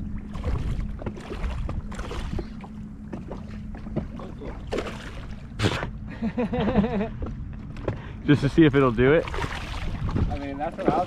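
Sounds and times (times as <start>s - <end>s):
water lapping: 0.0s - 6.3s, 6.9s - 11.0s
steady low hum: 0.0s - 11.0s
fish splashing and thrashing: 0.1s - 6.0s, 8.9s - 11.0s.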